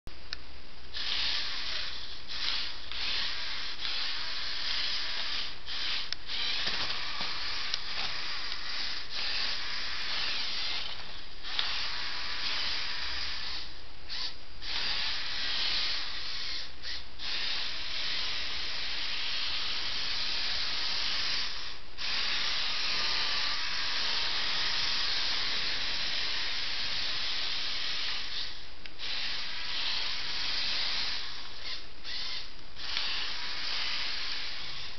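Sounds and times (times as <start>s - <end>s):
toy truck motor whirring: 1.0s - 34.9s.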